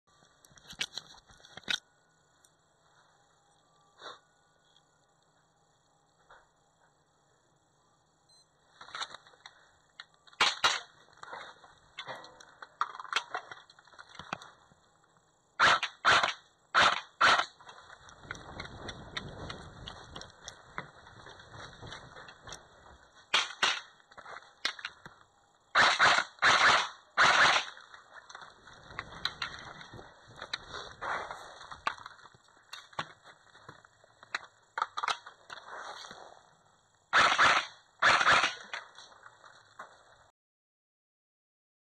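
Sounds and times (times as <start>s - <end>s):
airsoft rifle shots: 10.4s - 11.0s, 15.6s - 17.6s, 23.3s - 24.0s, 25.7s - 27.9s, 37.1s - 38.9s
footsteps: 17.6s - 23.3s, 28.1s - 33.9s.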